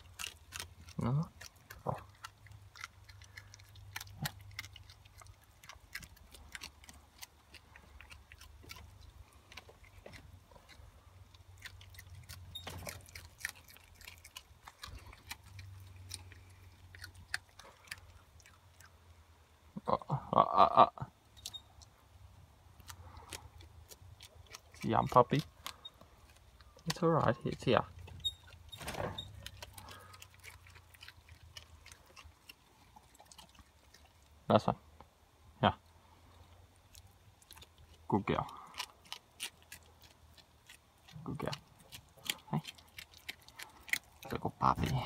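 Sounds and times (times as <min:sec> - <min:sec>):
animal chewing with crunches: 0:00.0 - 0:19.3, 0:21.2 - 0:35.2, 0:36.0 - 0:45.0.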